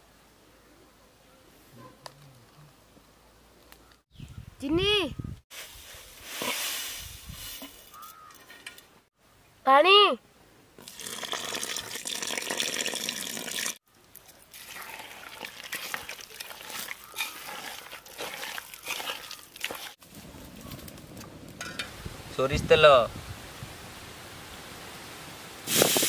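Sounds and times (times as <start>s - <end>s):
water pouring into bowl: 10.8s - 13.8s
hands squelching dough: 14.1s - 20.0s.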